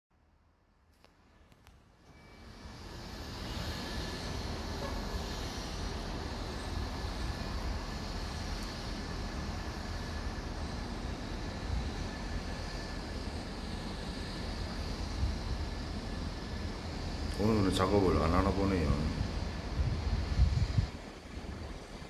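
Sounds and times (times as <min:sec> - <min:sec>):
low city rumble: 0:00.1 - 0:22.0
continuous hiss: 0:00.8 - 0:22.0.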